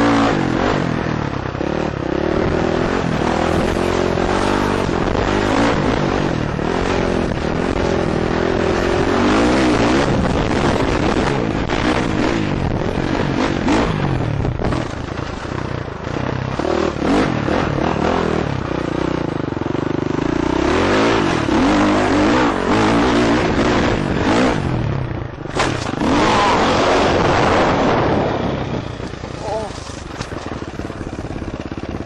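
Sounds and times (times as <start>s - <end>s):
dirt bike engine revving: 0.0s - 32.0s
wind noise on microphone: 2.4s - 15.6s
sharp clatter: 21.1s - 28.0s, 28.6s - 32.0s.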